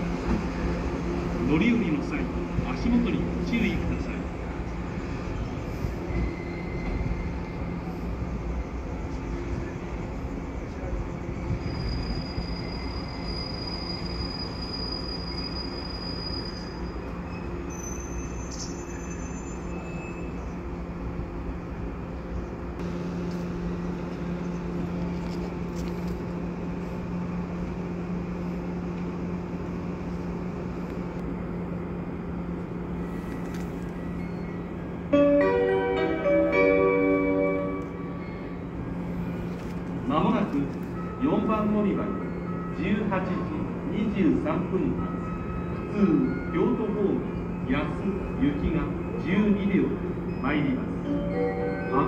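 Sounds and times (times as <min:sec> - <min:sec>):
electric train hum and rumble: 0:00.0 - 0:52.0
thin high squeal: 0:11.6 - 0:20.3.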